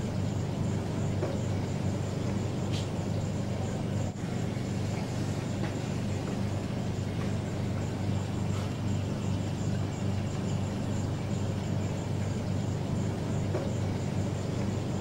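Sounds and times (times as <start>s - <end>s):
aquarium pump humming: 0.0s - 15.0s.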